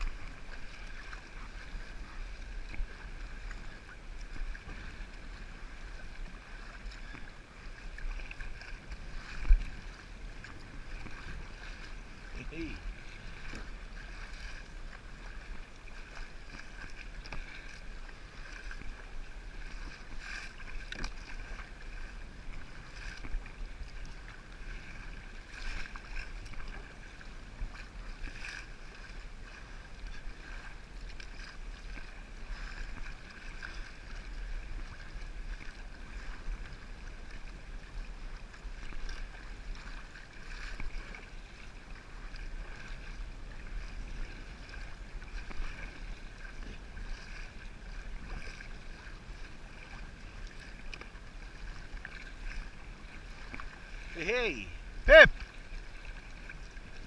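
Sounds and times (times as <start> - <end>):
wind rumble on microphone: 0.0 - 54.1
paddle splashing: 0.0 - 57.0
water washing along hull: 0.0 - 57.0.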